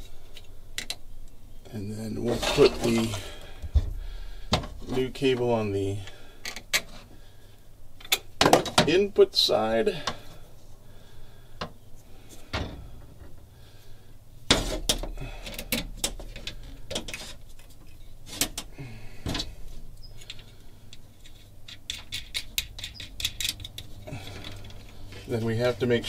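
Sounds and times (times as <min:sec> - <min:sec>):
metallic clicks and clatter: 0:20.2 - 0:25.0.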